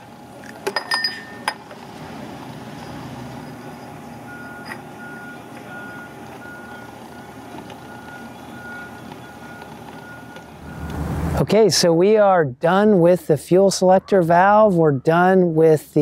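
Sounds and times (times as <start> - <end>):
vehicle engine rumble: 0.0 - 12.2
reversing alarm beeping: 3.6 - 11.1.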